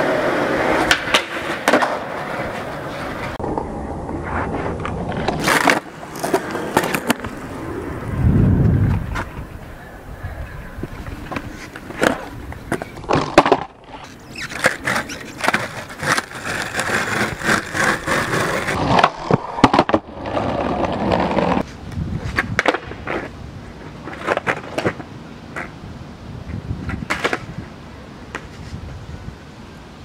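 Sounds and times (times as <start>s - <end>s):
skateboard clacks: 0.0s - 3.6s, 4.8s - 7.6s, 10.8s - 23.3s, 26.8s - 27.6s
skateboard wheels rolling on asphalt: 0.0s - 30.0s.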